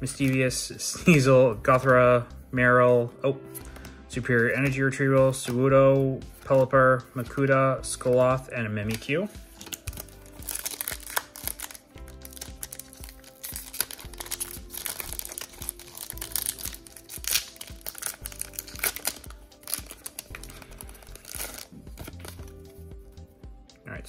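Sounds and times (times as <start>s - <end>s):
background music: 0.0s - 24.0s
foil wrapper crinkling: 9.5s - 22.6s.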